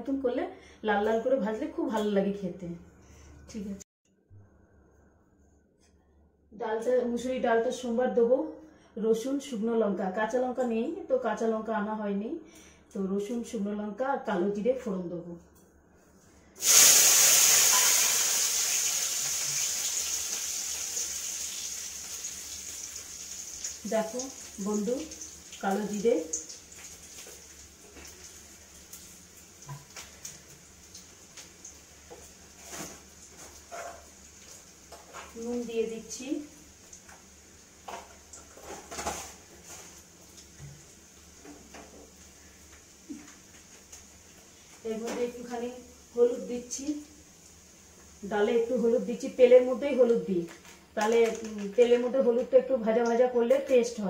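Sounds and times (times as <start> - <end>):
hot oil sizzling: 16.6 - 50.2.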